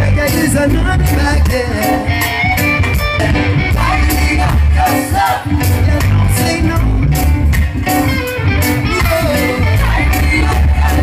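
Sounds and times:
electric guitar: 0.0 - 11.0
heavy bass: 0.0 - 11.0
person singing: 8.9 - 11.0.

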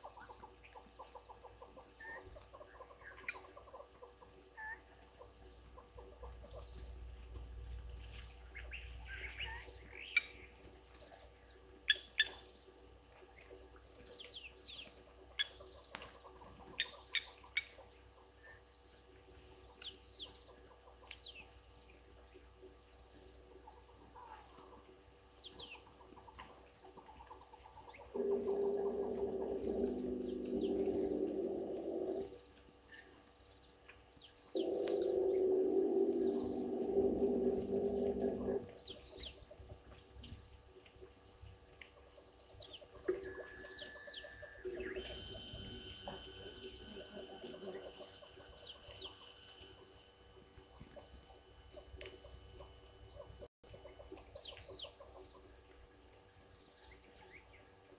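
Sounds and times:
crickets and insects trilling: 0.0 - 57.9
bird chirps: 27.9 - 32.3, 34.3 - 39.4, 42.6 - 49.8
thin whistle-like tones: 28.1 - 32.3, 34.5 - 38.6, 43.1 - 49.9
loud low multi-pitched calling: 28.2 - 32.4, 34.6 - 38.7.

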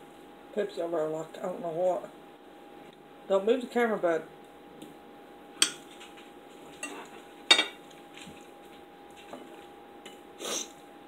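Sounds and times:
cutlery clinking on plates: 5.6 - 6.0, 6.8 - 7.8.

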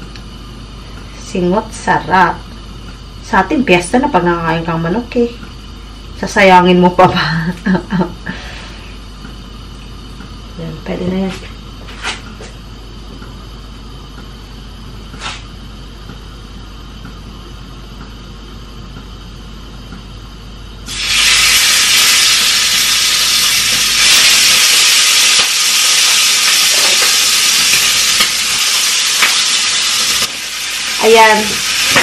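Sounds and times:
food sizzling in hot oil: 20.9 - 32.0.

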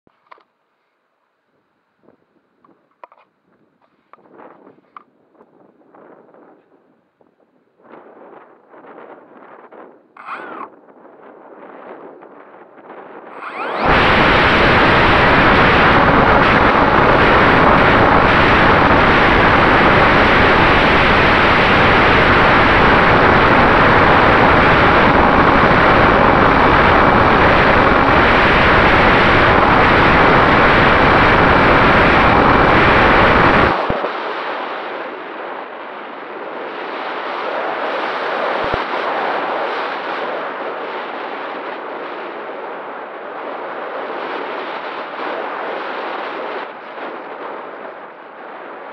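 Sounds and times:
wind rush over microphone: 2.0 - 48.9
electric motor and propeller: 10.2 - 10.8, 13.3 - 34.1.

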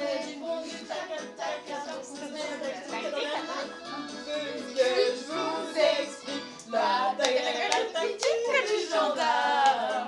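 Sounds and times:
group singing: 0.0 - 10.0
karaoke backing track: 0.0 - 10.0
hand claps: 6.6 - 8.5, 9.6 - 9.9.

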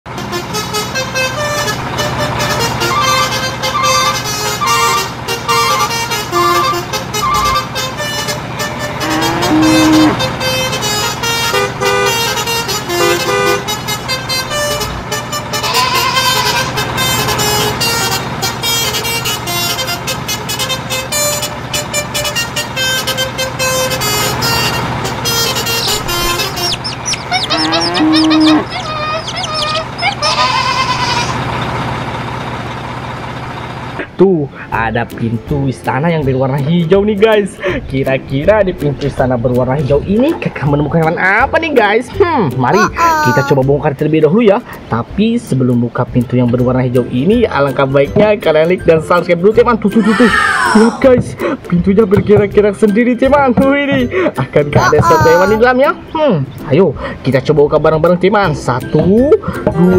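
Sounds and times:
loud honk-like swoops: 1.6 - 13.9
upbeat background music: 34.8 - 59.9.

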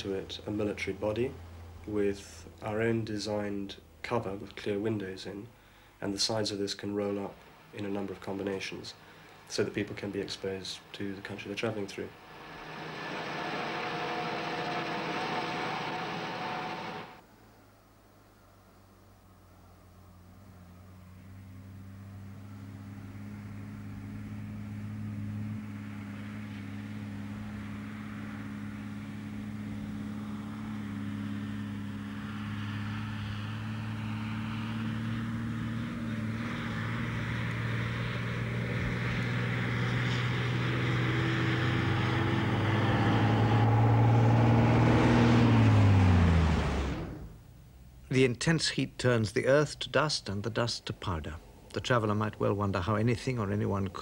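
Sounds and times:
truck diesel engine running: 11.1 - 17.2, 26.2 - 47.5.

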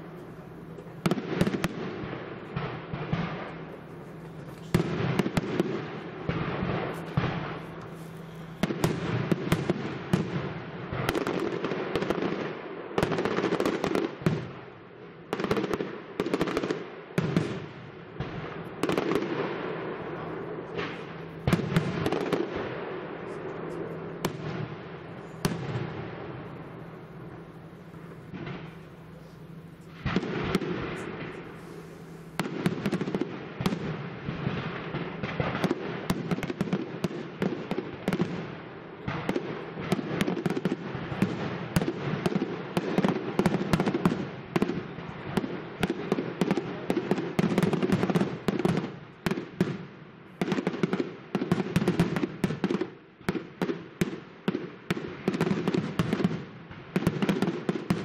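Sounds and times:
fireworks crackling: 0.0 - 58.0
firework shells bursting: 20.7 - 33.8.

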